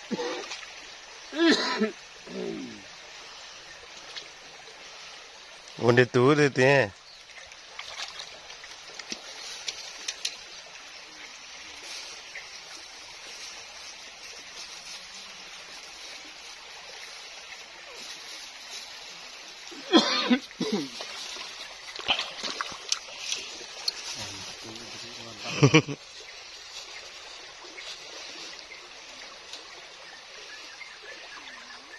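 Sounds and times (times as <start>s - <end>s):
river running over stones: 0.0s - 31.9s
feet splashing through water: 7.2s - 10.3s, 18.0s - 28.9s.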